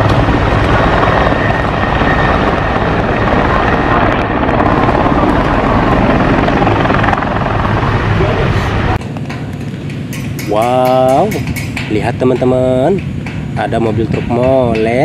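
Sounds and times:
helicopter rotor and engine: 0:00.0 - 0:15.0.

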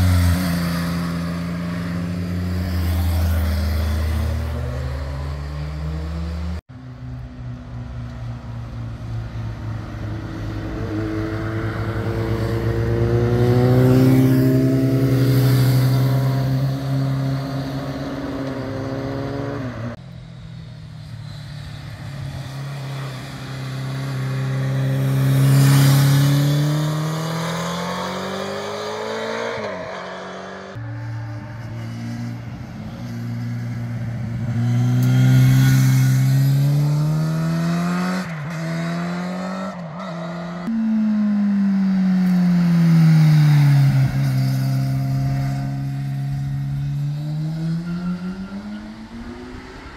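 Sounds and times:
motorcycle engines accelerating: 0:00.0 - 0:06.6, 0:09.2 - 0:49.9.

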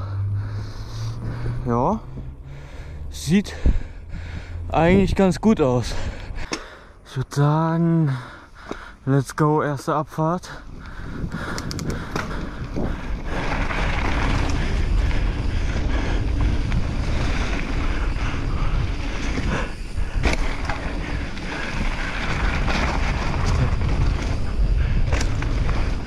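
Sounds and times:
tyres rumbling on dirt: 0:00.0 - 0:06.8, 0:07.4 - 0:26.0
bike knocking and rattling: 0:10.2 - 0:26.0
wind buffeting microphone: 0:10.5 - 0:26.0.

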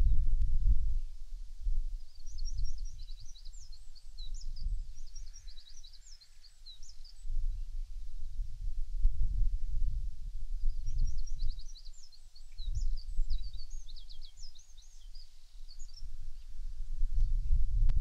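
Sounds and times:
songbird chirping and trilling: 0:02.0 - 0:08.0, 0:10.6 - 0:16.6.

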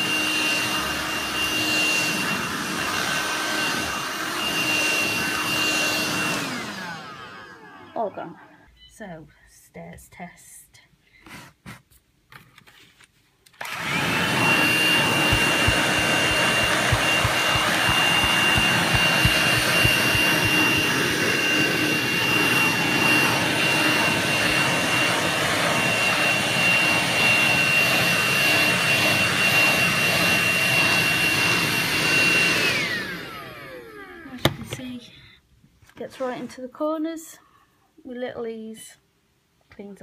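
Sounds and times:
handheld vacuum cleaner whine: 0:00.0 - 0:08.0, 0:13.6 - 0:34.4.

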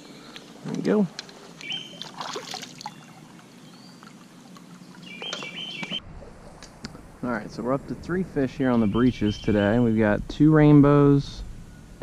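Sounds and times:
stream water flowing: 0:01.3 - 0:07.2
light water splashing: 0:01.5 - 0:07.1
songbird whistled call: 0:01.6 - 0:02.0, 0:05.0 - 0:06.0.

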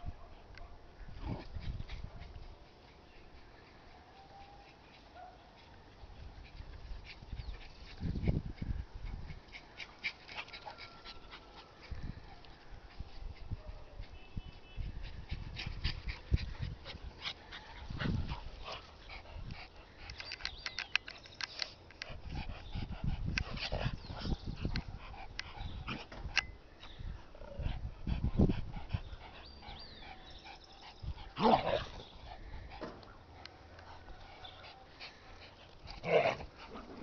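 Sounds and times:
dogs barking and yipping: 0:04.3 - 0:05.9, 0:09.4 - 0:12.5.

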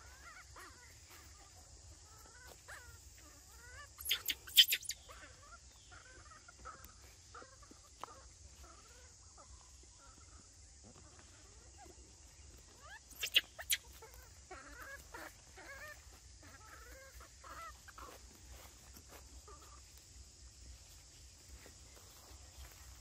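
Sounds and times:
animal chirps and squeaks: 0:02.2 - 0:06.8, 0:12.7 - 0:18.7
steady high hiss: 0:04.0 - 0:05.1.

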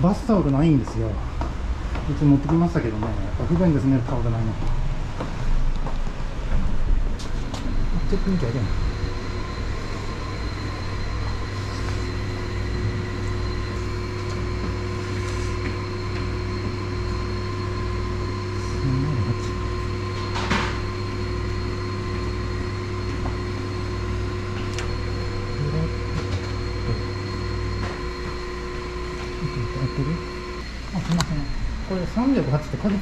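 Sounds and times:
machine hum with low throb: 0:00.0 - 0:33.0
faint whining tones: 0:06.6 - 0:33.0.

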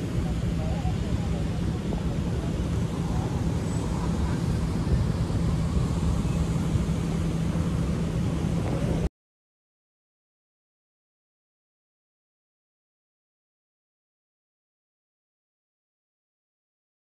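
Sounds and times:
road traffic engine hum: 0:00.0 - 0:09.1.

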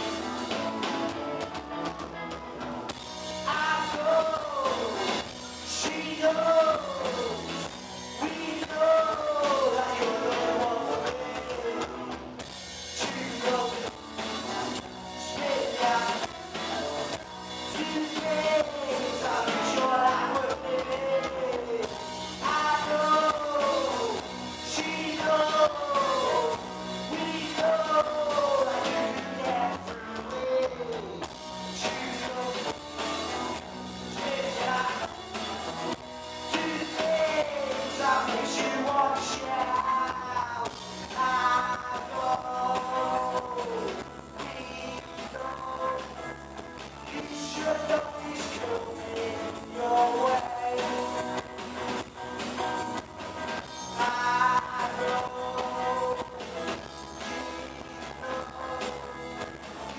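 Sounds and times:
drum kit: 0:00.0 - 0:59.9
electric guitars: 0:00.0 - 0:59.9
man singing: 0:03.3 - 0:59.9.

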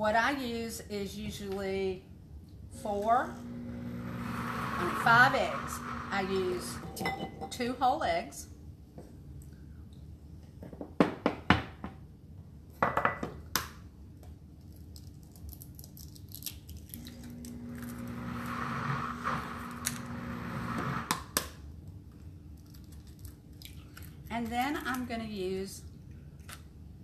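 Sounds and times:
blender motor humming: 0:02.8 - 0:07.0, 0:17.0 - 0:21.2.

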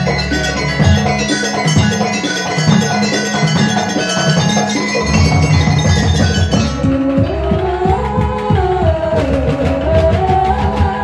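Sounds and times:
metallophones struck with mallets: 0:00.0 - 0:07.7
hand drums: 0:00.0 - 0:11.0.

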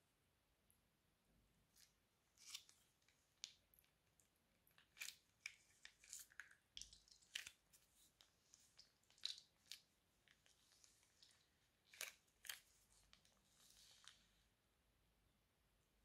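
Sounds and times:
slime squishing and popping: 0:08.8 - 0:10.5.

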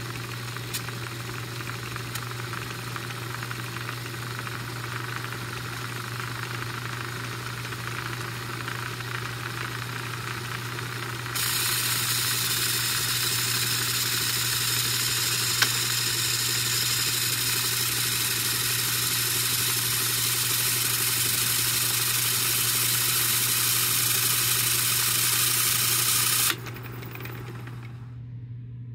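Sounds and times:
hissing whir of tape transport: 0:00.0 - 0:28.2
motor hum: 0:00.0 - 0:28.9.

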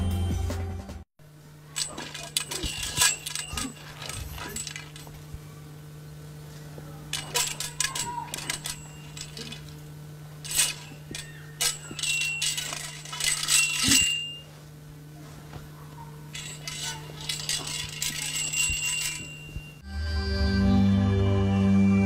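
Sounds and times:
metal staff clinking and ringing: 0:01.8 - 0:05.2, 0:07.1 - 0:09.8, 0:10.4 - 0:14.6, 0:16.3 - 0:19.8.

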